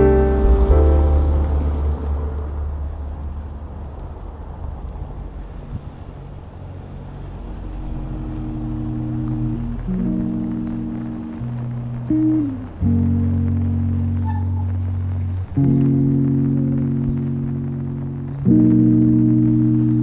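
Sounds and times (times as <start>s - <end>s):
music: 0.0s - 2.9s, 7.9s - 20.0s
wind and road noise: 0.0s - 20.0s.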